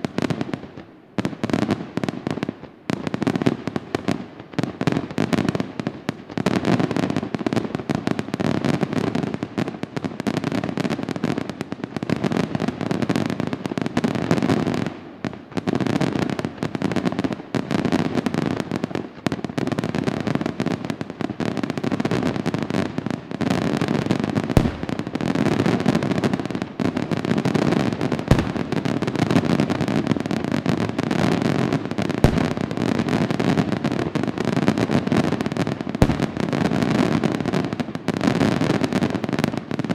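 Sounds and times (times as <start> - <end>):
fireworks bangs and crackle: 0.0 - 39.9
heavy firework booms: 24.4 - 37.3.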